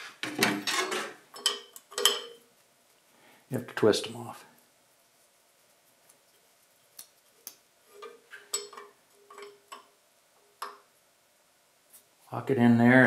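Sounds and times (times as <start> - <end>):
wrench clinking on metal fitting: 0.7 - 2.4, 8.0 - 9.9.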